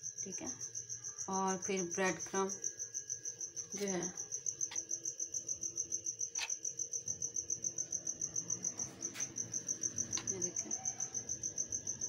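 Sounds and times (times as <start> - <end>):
cricket chirping: 0.0 - 12.0.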